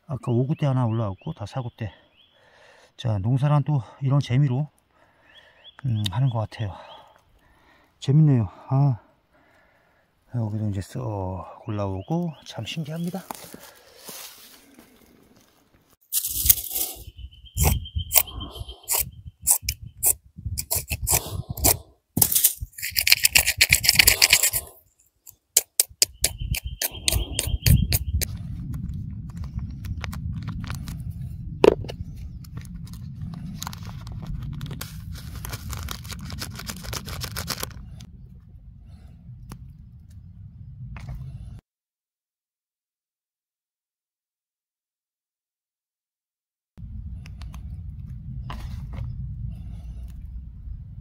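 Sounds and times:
packet tearing open: 16.1s - 17.1s, 20.6s - 24.8s, 33.5s - 38.0s
steady low rumble: 26.6s - 41.6s, 46.8s - 51.0s
plastic packet crinkling: 33.6s - 37.8s.

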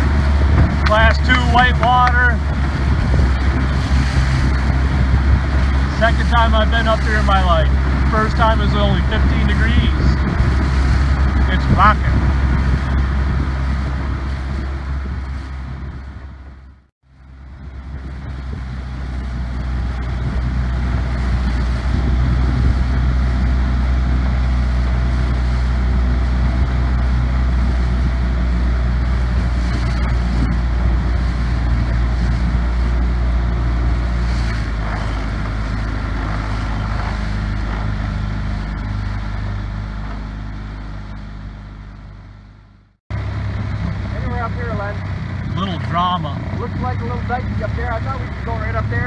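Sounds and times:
rushing water: 0.0s - 16.4s, 18.3s - 41.5s
wind on microphone: 0.0s - 41.4s, 43.1s - 49.0s
outboard motor running: 0.0s - 49.0s.

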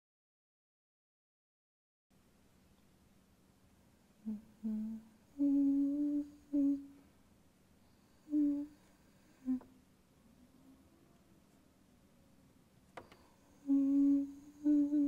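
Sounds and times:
woman humming a slow tune: 4.2s - 7.0s, 8.2s - 9.7s, 13.5s - 15.0s.

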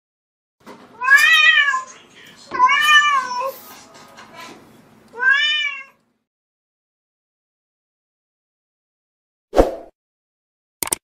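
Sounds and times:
cat meowing: 1.0s - 1.9s, 2.5s - 3.5s, 5.1s - 6.0s.

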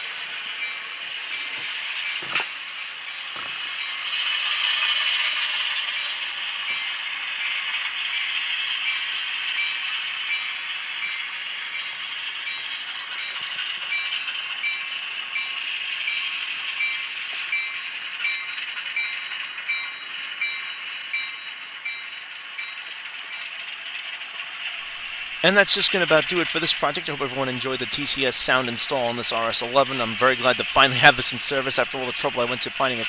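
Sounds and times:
diesel engine sound from speaker: 24.8s - 33.0s.

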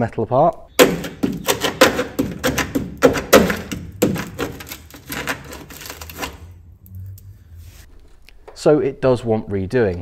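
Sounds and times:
rusted sheet steel cracking: 0.8s - 6.7s.

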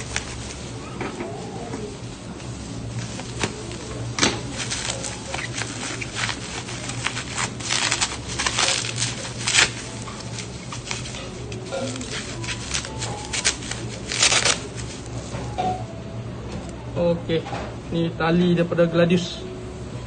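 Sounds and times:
plastic wrapping crinkling: 0.0s - 15.5s.

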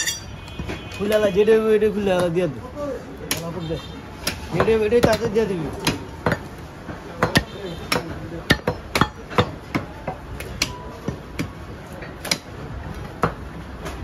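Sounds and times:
cleaver chopping on wooden block: 4.2s - 6.5s, 7.1s - 11.6s, 12.2s - 12.5s.

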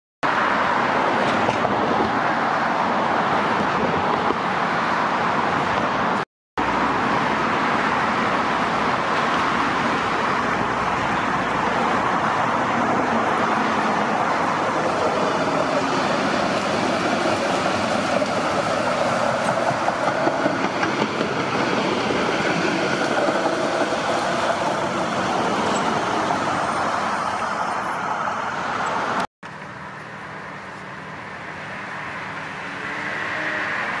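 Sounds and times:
highway traffic noise: 0.2s - 34.0s.

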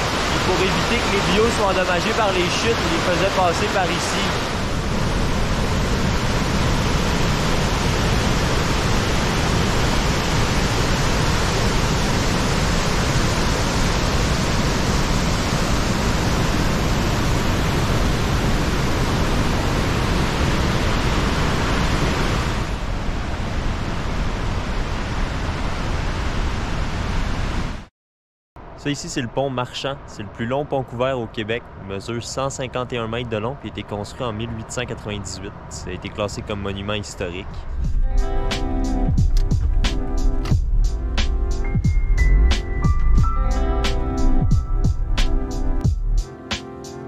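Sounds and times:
waterfall rushing: 0.0s - 23.0s.

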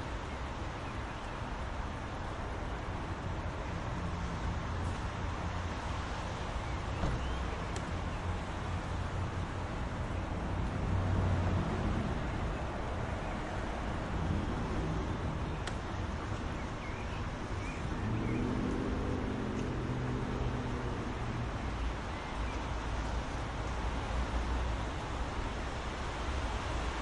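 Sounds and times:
soft rain hiss: 0.0s - 27.0s.

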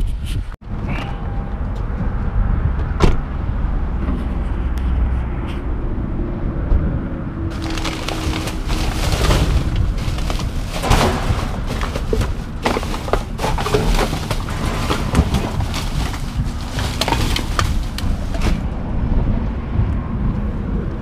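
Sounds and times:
steady low rumble: 0.6s - 21.0s
plastic bags and cardboard rustling: 7.5s - 18.7s.

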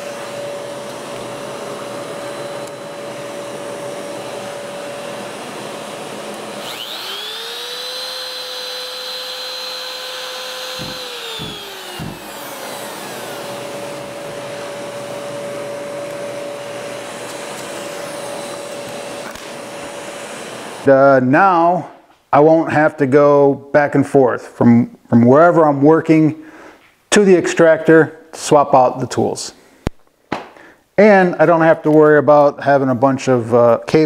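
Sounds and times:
dust extractor running: 0.0s - 20.9s
router whining: 0.0s - 20.9s
low knocks: 10.7s - 12.3s.

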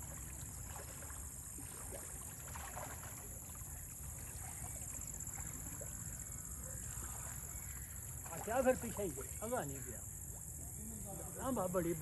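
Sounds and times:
water sloshing and splashing: 0.0s - 10.6s
steady high-pitched hiss: 3.2s - 12.0s.

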